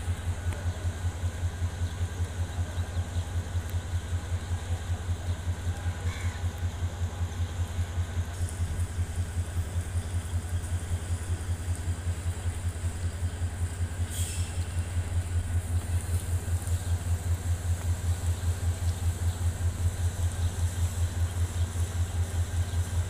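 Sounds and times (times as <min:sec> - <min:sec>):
diesel locomotive engine idling: 0:00.0 - 0:23.0.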